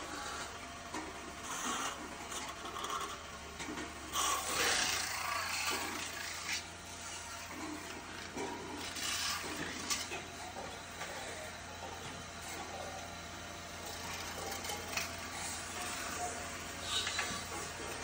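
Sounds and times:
tool scraping spinning metal: 0:04.1 - 0:10.3, 0:13.8 - 0:18.0.

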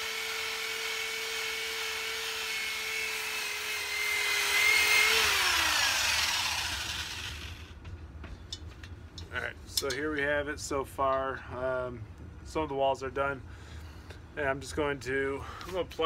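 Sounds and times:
electric drill motor whine: 0:00.0 - 0:07.8.

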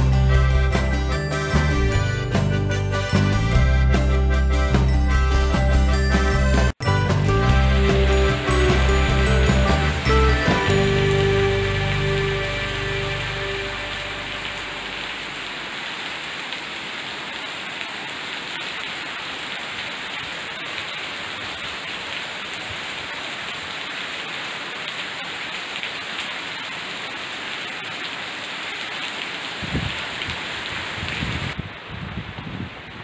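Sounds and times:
rain pattering on leaves: 0:07.7 - 0:33.0.

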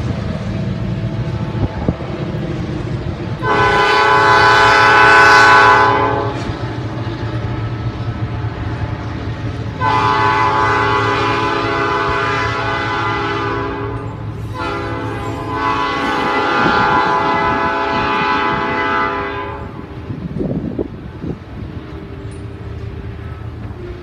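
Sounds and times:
freight cars rumbling on rails: 0:00.0 - 0:24.0
locomotive air horn blasts: 0:03.4 - 0:06.5, 0:09.7 - 0:19.9.

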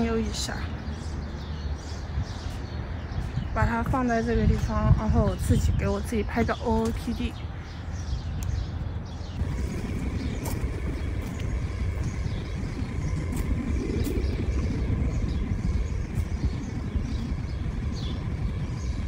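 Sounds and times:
low outdoor rumble: 0:09.2 - 0:19.0.

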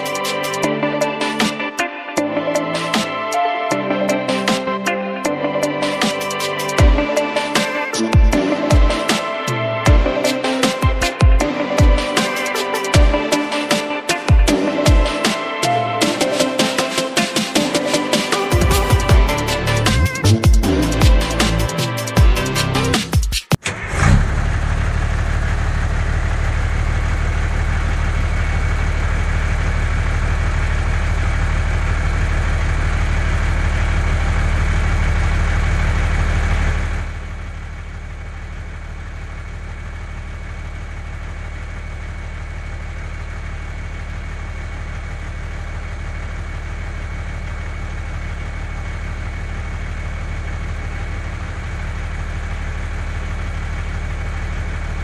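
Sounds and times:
heavy vehicle engine idling: 0:18.5 - 0:23.0, 0:23.7 - 0:55.0.

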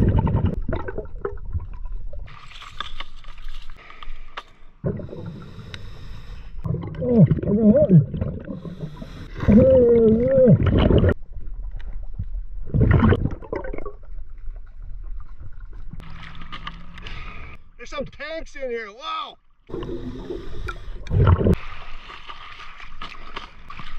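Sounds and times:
exhaled bubbles: 0:00.0 - 0:02.3, 0:04.8 - 0:05.7, 0:06.6 - 0:16.4, 0:19.7 - 0:21.6
diver breathing through regulator: 0:03.8 - 0:06.7, 0:08.4 - 0:09.6, 0:17.0 - 0:17.6, 0:19.7 - 0:22.0.

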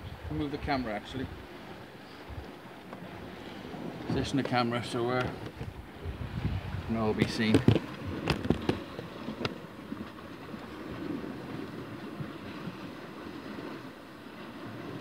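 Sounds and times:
sea washing against rocks: 0:00.0 - 0:15.0
wind buffeting microphone: 0:00.0 - 0:15.0
microphone handling knocks: 0:07.2 - 0:08.8.

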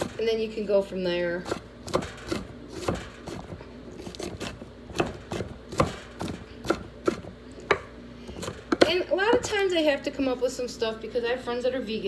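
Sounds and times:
knife chopping on wooden board: 0:01.4 - 0:09.5.

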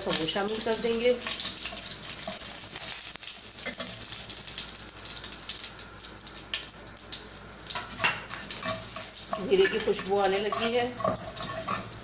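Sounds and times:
spices sizzling in hot oil: 0:00.0 - 0:12.0.

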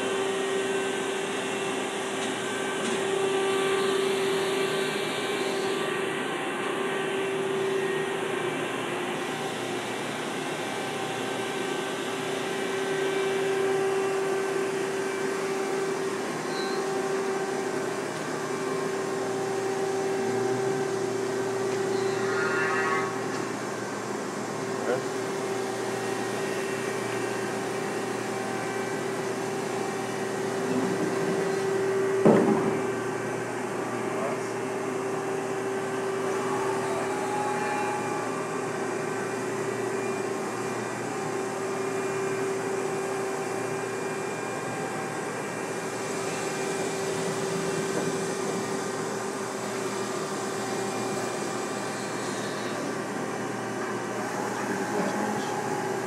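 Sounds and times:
machine whine: 0:00.0 - 0:56.0
sharp knock: 0:32.2 - 0:32.8.

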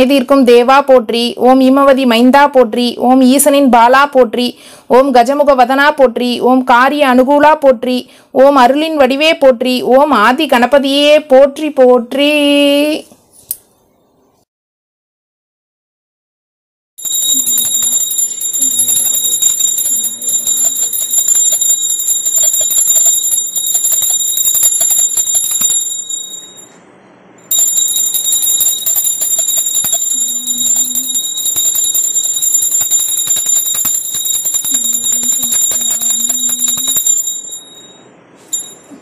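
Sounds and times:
hand bell ringing: 0:17.0 - 0:26.7, 0:27.5 - 0:39.0.

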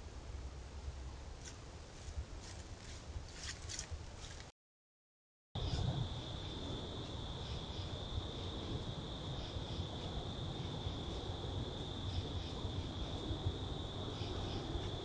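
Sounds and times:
soft rustles: 0:01.4 - 0:04.5.

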